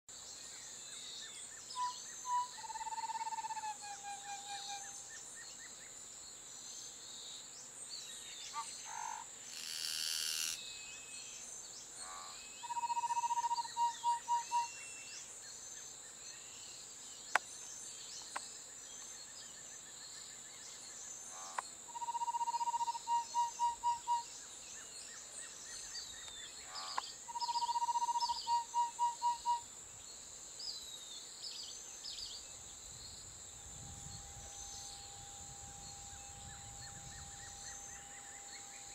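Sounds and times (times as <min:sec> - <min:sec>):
high insect-like drone: 0:01.9 - 0:05.1, 0:08.8 - 0:15.3, 0:21.1 - 0:24.4, 0:32.9 - 0:38.9
wren singing trills: 0:12.0 - 0:15.1, 0:21.4 - 0:24.9, 0:25.6 - 0:29.6.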